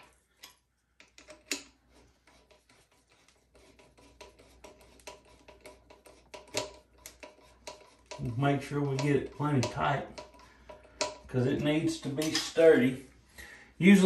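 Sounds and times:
screwdriver clicks and scratches: 0:00.4 - 0:08.3.

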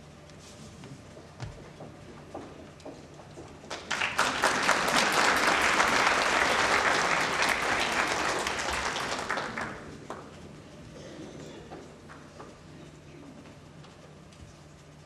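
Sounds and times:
audience applauding: 0:03.7 - 0:10.3.

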